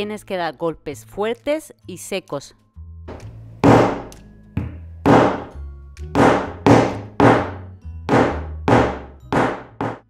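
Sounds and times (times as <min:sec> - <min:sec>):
hammer striking metal tool: 0:03.6 - 0:05.5, 0:06.2 - 0:10.0.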